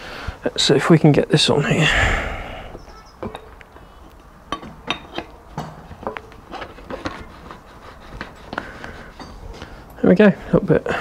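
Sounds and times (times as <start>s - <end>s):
metal wheel parts knocking: 4.5s - 7.2s.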